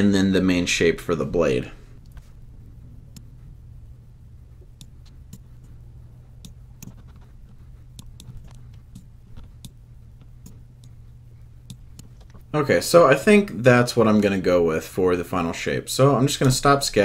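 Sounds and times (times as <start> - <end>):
steady low hum: 0.0 - 17.0
computer mouse clicking: 4.6 - 5.8, 6.4 - 11.0, 11.6 - 12.5.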